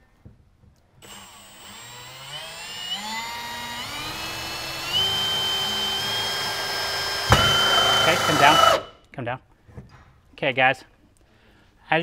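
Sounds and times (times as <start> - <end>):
cordless drill motor whine: 1.0 - 8.9.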